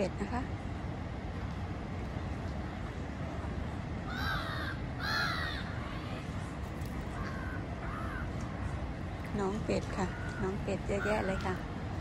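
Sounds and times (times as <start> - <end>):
steady low rumble: 0.0 - 12.0
caw-like bird calls: 4.1 - 6.3, 7.1 - 8.5, 10.0 - 11.6.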